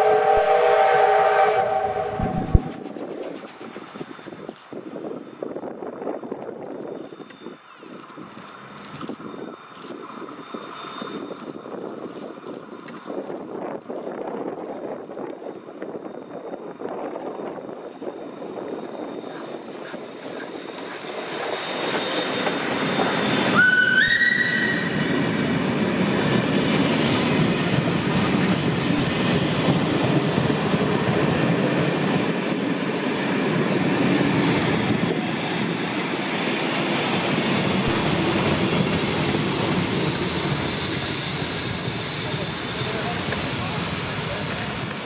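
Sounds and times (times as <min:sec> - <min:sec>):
steam locomotive whistle: 0:00.0 - 0:02.8, 0:21.6 - 0:25.2, 0:39.8 - 0:45.0
wheels squealing on rail: 0:00.0 - 0:32.8, 0:34.0 - 0:45.0
train wheels rumbling and clattering: 0:01.8 - 0:23.6, 0:24.4 - 0:45.0.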